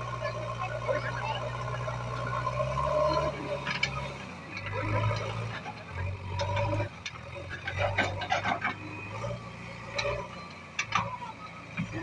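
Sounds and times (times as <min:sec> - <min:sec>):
diesel engine droning: 0:00.0 - 0:12.0
clicks and clatter: 0:03.6 - 0:09.0.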